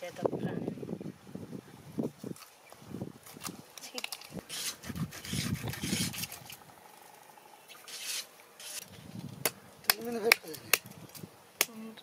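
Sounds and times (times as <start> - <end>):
rough scraping and rubbing: 3.3 - 6.7, 7.7 - 9.4.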